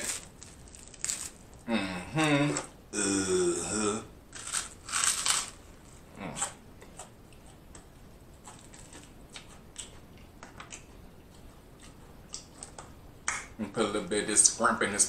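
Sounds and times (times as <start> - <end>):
crunching bites into toasted bread: 0.0 - 1.5, 4.4 - 5.6
chewing: 6.2 - 12.9.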